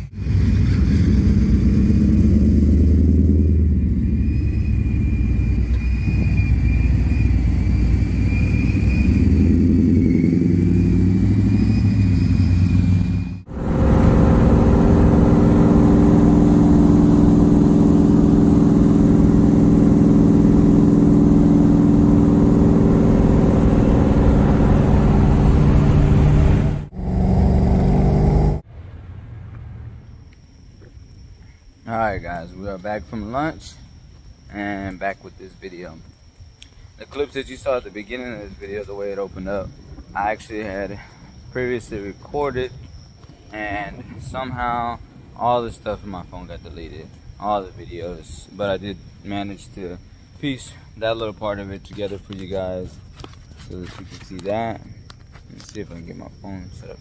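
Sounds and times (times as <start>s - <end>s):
truck engine revving: 0.0s - 28.6s
engine running at steady pitch: 0.0s - 35.0s
supercharger whine: 0.0s - 57.0s.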